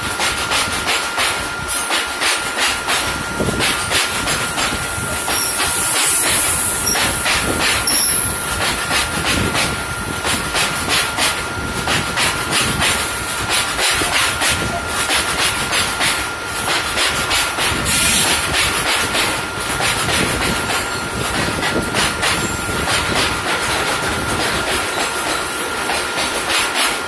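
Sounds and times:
train wheels clattering over rail joints: 0:00.0 - 0:27.0
high ringing tone: 0:04.9 - 0:07.2, 0:07.8 - 0:08.4.

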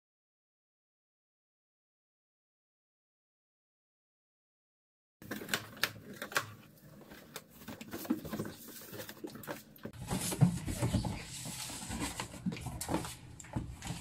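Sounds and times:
cardboard scraping and rustling: 0:06.9 - 0:14.0.

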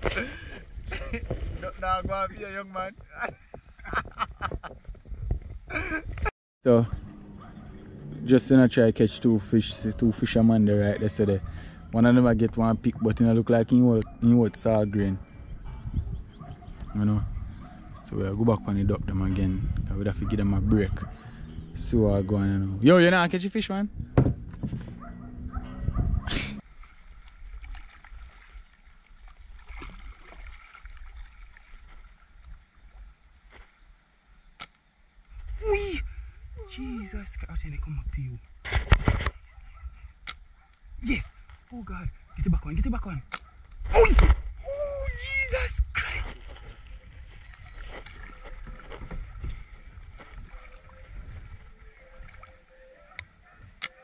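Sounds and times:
wind rumbling on microphone: 0:00.0 - 0:33.4, 0:35.3 - 0:52.4
faint water and hull noises: 0:00.0 - 0:54.0
knocks on kayak hull: 0:24.1 - 0:25.0
paddle splashing water: 0:26.4 - 0:33.8, 0:46.0 - 0:54.0.

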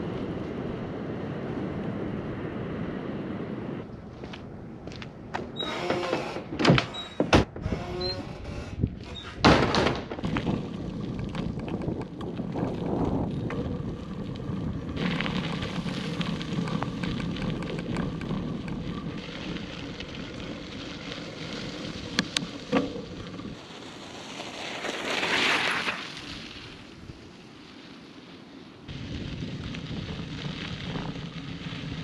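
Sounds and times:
bike tyres on dirt trail: 0:00.0 - 0:32.0
plastic door banging shut: 0:05.9 - 0:07.6, 0:09.4 - 0:10.2.

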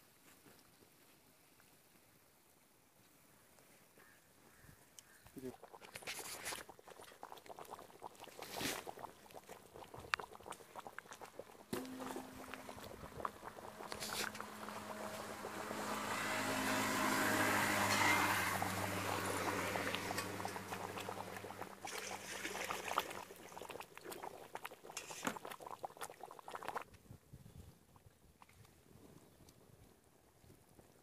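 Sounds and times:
gravy boiling in a pan: 0:04.5 - 0:27.0
small bubble pops: 0:05.6 - 0:15.0, 0:19.8 - 0:27.0
low motor hum: 0:11.8 - 0:23.2.

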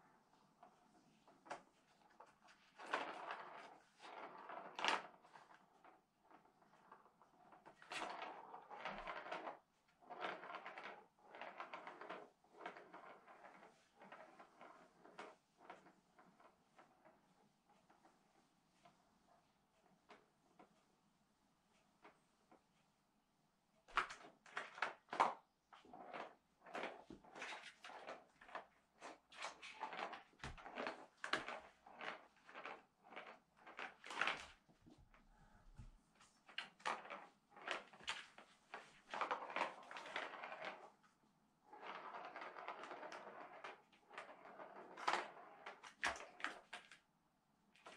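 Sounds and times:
plastic ball rattling in track: 0:01.4 - 0:17.0, 0:23.9 - 0:34.6, 0:36.4 - 0:41.0, 0:41.6 - 0:47.0.

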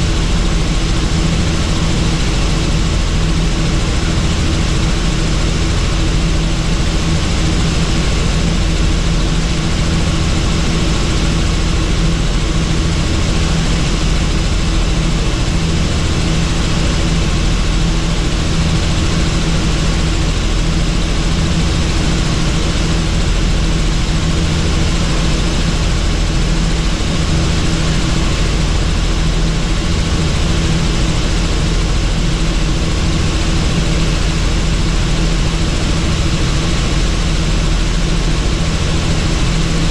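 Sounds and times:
helicopter engine and rotor: 0:00.0 - 0:39.9.

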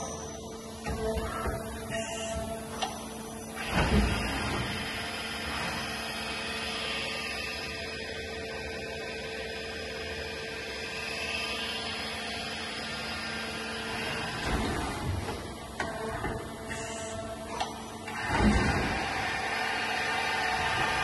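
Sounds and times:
lathe machine hum: 0:04.3 - 0:14.4, 0:18.9 - 0:21.0.

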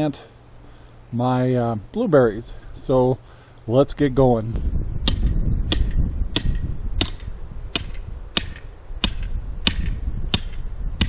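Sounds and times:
wind rumbling on microphone: 0:03.8 - 0:11.0
metal-on-metal hammer blows: 0:05.0 - 0:11.0.

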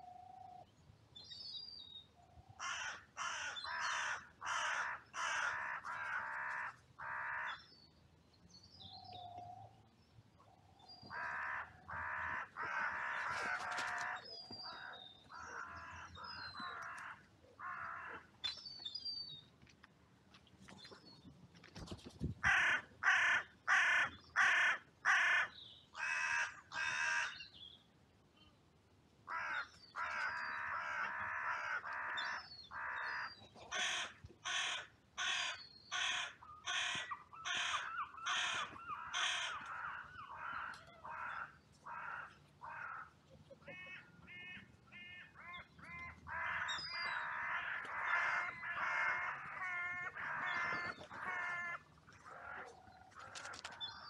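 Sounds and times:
crows cawing: 0:02.6 - 0:07.6, 0:11.1 - 0:18.3, 0:22.4 - 0:27.4, 0:29.3 - 0:53.6.

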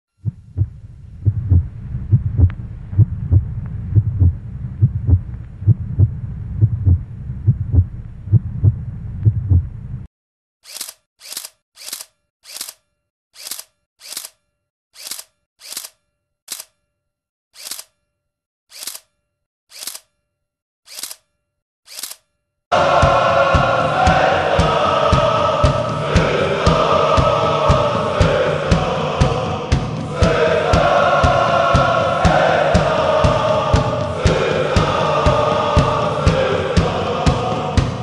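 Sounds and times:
heartbeat thumps: 0:00.2 - 0:10.1
low hum: 0:00.2 - 0:10.1
camera shutter clicks: 0:10.6 - 0:12.8, 0:13.4 - 0:14.4, 0:15.0 - 0:16.7, 0:17.6 - 0:17.9, 0:18.7 - 0:19.1, 0:19.7 - 0:20.1, 0:20.9 - 0:21.2, 0:21.9 - 0:22.2.

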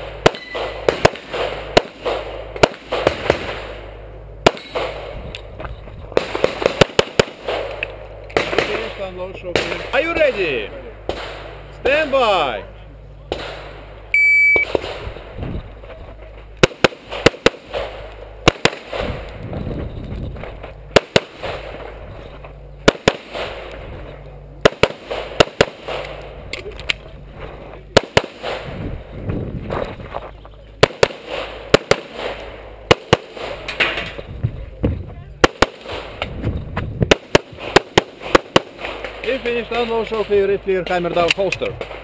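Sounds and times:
shot timer beep: 0:14.1 - 0:14.7.

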